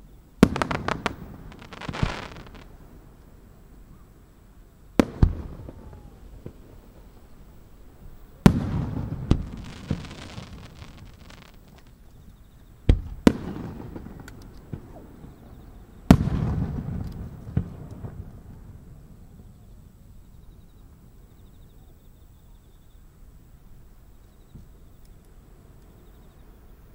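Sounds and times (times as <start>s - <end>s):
firework booms: 0.4s - 3.1s, 5.0s - 7.4s, 8.4s - 11.9s, 12.9s - 18.9s
hissing crackle: 0.4s - 12.3s.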